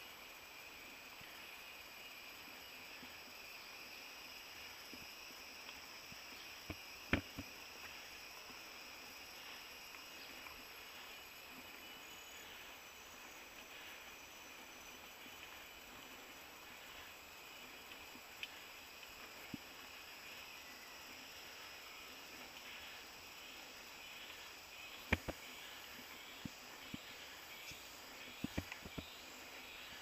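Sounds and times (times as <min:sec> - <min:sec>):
insect chorus buzzing: 0:00.0 - 0:30.0.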